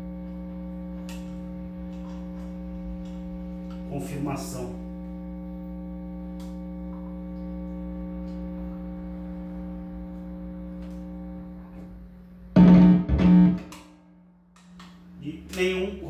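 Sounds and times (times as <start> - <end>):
guitar amplifier buzzing: 0.0 - 16.0
loud guitar strums: 12.6 - 14.1.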